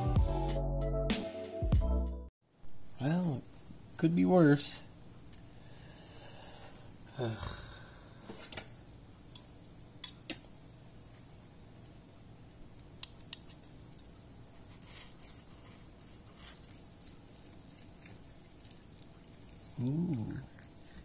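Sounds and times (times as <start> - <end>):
knife and fork on plate: 13.0 - 18.9.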